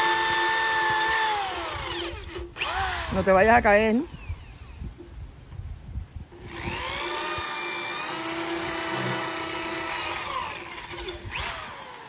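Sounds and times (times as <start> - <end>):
electric drill boring through clay: 0.0 - 3.4, 6.3 - 12.0.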